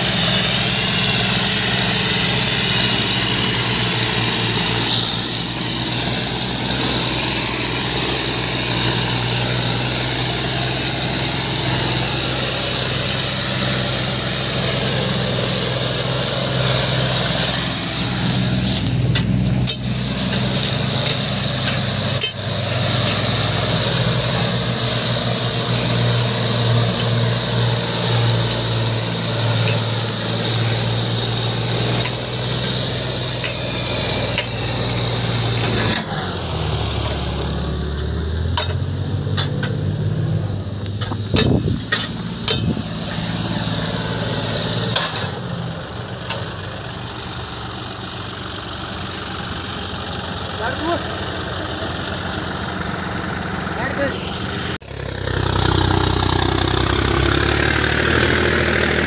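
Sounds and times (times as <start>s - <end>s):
tractor diesel engine running: 0.0s - 59.0s
knocks and clatters: 38.5s - 39.9s, 40.9s - 43.3s.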